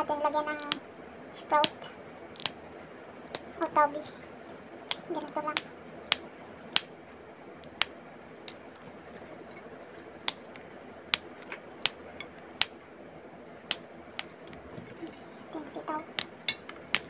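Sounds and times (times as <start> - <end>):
beans snapping: 0.6 - 0.8, 1.6 - 2.6, 3.2 - 3.5, 4.4 - 7.0, 7.6 - 9.4, 10.1 - 12.8, 13.6 - 15.3, 16.1 - 17.0.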